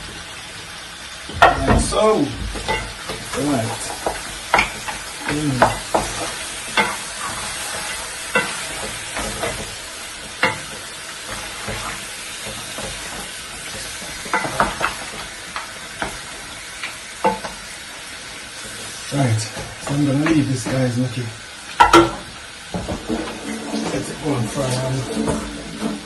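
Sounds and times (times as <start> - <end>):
meat sizzling in a pot: 0.0 - 26.0
wooden spoon scraping a pot: 23.0 - 26.0.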